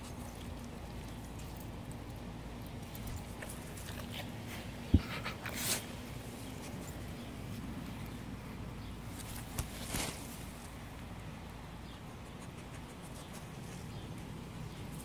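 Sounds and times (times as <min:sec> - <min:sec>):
dog rustling in leaves: 0:09.1 - 0:10.9.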